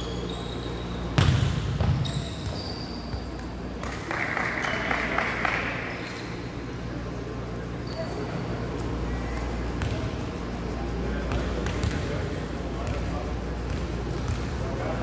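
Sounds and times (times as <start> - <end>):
shoes squeaking on court: 0.0 - 3.6, 6.0 - 6.7, 7.8 - 10.0
volleyball smack: 1.2 - 1.9.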